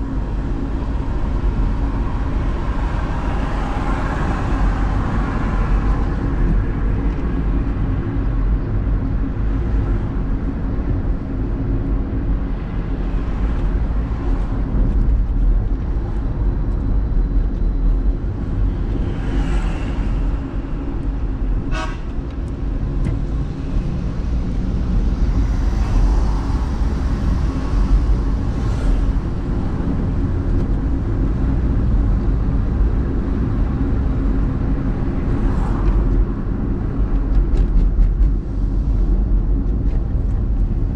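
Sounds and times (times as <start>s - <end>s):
car engine and road rumble: 0.0s - 40.9s
car horn toot: 21.7s - 22.1s.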